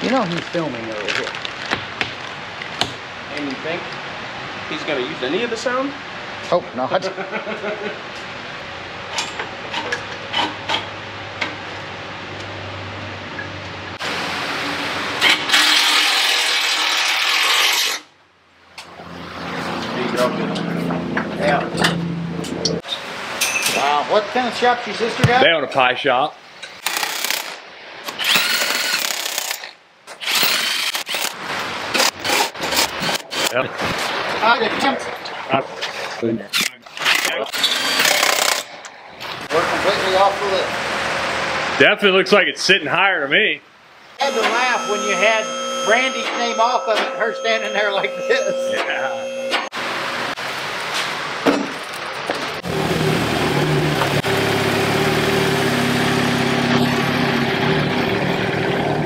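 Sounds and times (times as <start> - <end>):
impact wrench whirring: 26.8 - 31.4, 36.9 - 38.7.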